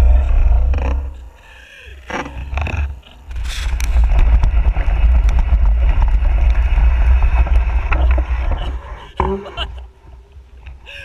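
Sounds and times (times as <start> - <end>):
tyres on dirt and rock: 0.0 - 10.9
bike clicks and rattles: 2.2 - 8.7
wind rumble on microphone: 2.4 - 10.9.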